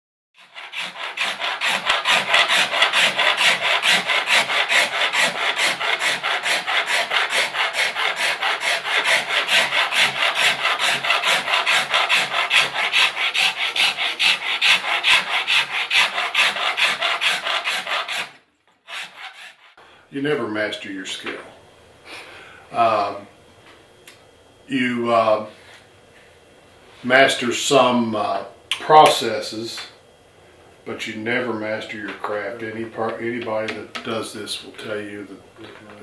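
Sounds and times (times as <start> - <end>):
hand rasp scraping wood: 0.4 - 19.8.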